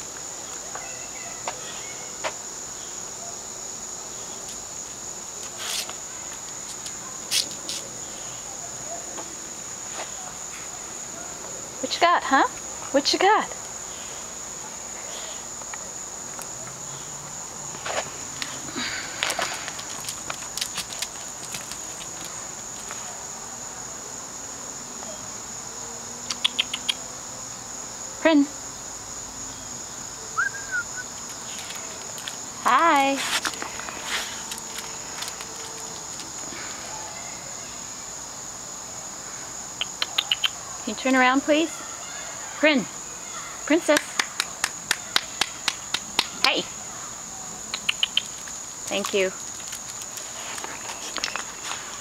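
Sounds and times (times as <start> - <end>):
insects buzzing: 0.0 - 52.0.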